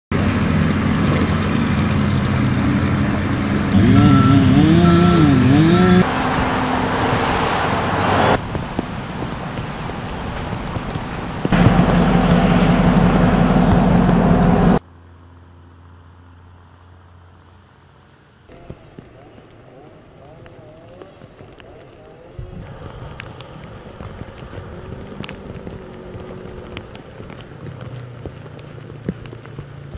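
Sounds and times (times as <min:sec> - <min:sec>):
engines running: 0:00.1 - 0:29.9
intermittent high beep: 0:03.8 - 0:05.3.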